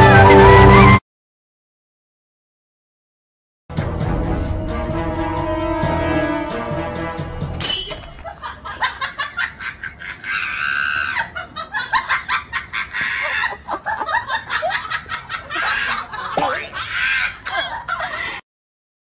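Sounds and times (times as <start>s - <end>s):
young men laughing: 8.2s - 18.4s.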